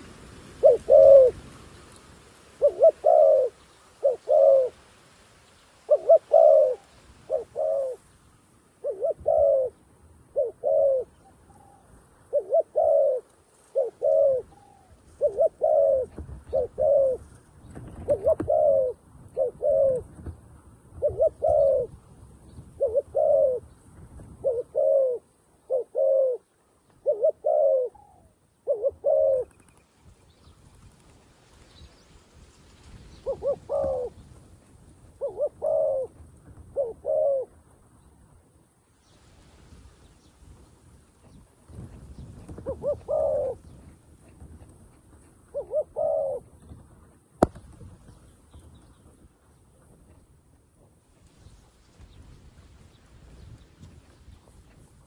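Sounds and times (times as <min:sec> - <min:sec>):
dove cooing: 0:00.0 - 0:01.5, 0:02.6 - 0:04.8, 0:05.8 - 0:08.0, 0:08.8 - 0:20.3, 0:20.9 - 0:22.0, 0:22.6 - 0:29.7, 0:33.1 - 0:34.3, 0:34.9 - 0:37.7, 0:41.2 - 0:46.8.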